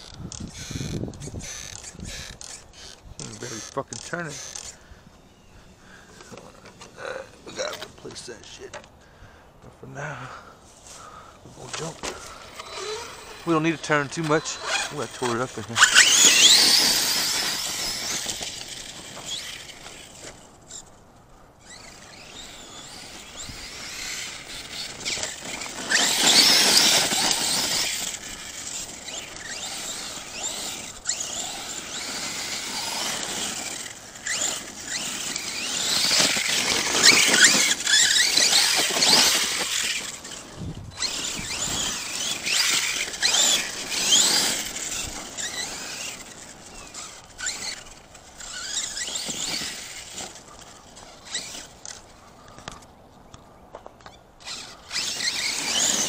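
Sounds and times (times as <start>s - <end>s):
electric motor whining: 11.8s - 21.0s, 21.6s - 52.8s, 54.4s - 56.0s.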